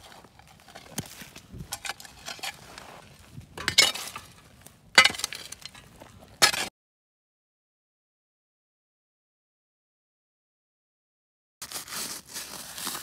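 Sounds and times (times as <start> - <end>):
spade scraping into stony soil: 0.0 - 6.7.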